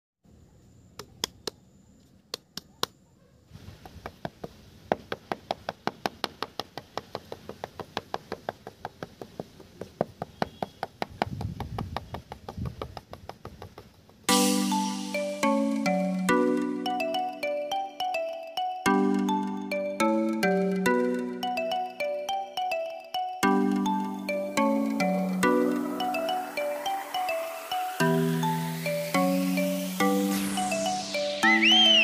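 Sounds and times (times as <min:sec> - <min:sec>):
trowel tapping on sand: 0:03.7 - 0:14.3
mallet instrument music: 0:14.3 - 0:32.0.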